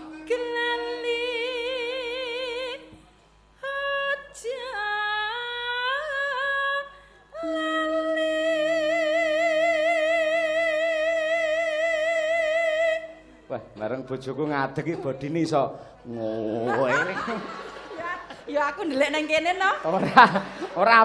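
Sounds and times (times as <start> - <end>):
woman singing with vibrato: 0.0 - 13.5.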